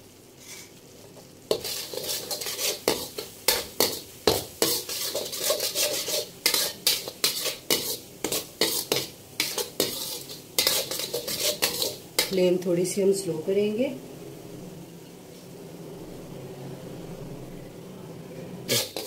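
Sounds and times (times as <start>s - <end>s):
spatula scraping metal wok: 1.5s - 12.4s, 18.6s - 19.0s.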